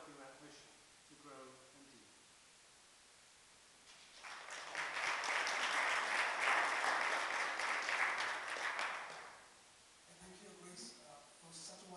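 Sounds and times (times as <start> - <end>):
congregation applauding: 3.9 - 9.5.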